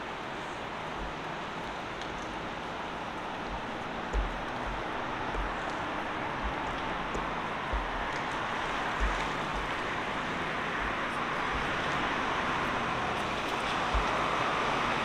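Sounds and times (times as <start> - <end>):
street traffic: 0.0 - 15.0
low thumps: 3.2 - 14.6.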